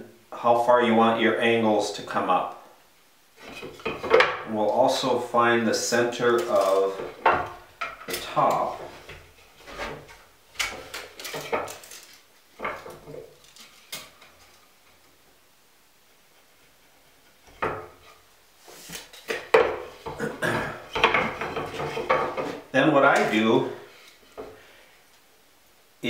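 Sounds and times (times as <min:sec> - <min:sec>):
wooden board knocking and clattering: 0:03.4 - 0:04.5, 0:06.4 - 0:11.9, 0:12.6 - 0:14.4, 0:17.4 - 0:18.0, 0:19.0 - 0:20.2, 0:20.8 - 0:22.6.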